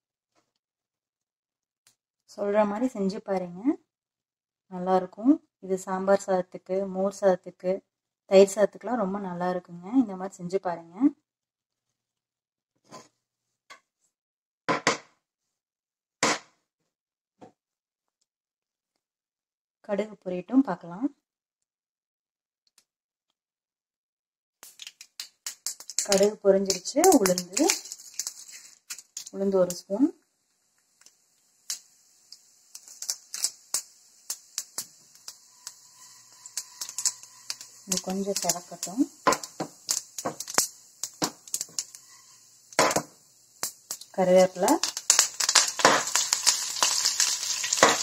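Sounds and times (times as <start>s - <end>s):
mustard seeds popping in oil: 24.6s - 48.0s.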